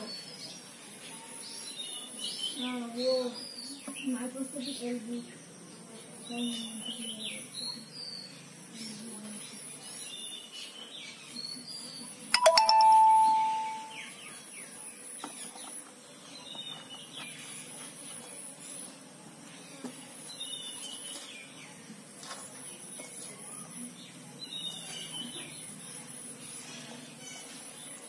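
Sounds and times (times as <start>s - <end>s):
bell-like ding: 12.4s - 14.0s.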